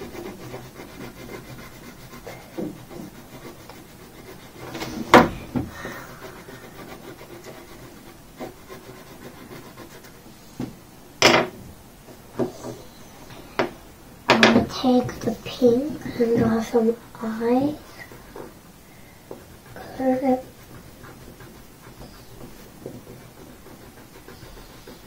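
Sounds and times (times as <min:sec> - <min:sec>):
crayon scratching on paper: 0:00.0 - 0:05.2, 0:05.8 - 0:10.2, 0:19.3 - 0:25.0
knocks on wooden table: 0:10.6 - 0:11.6.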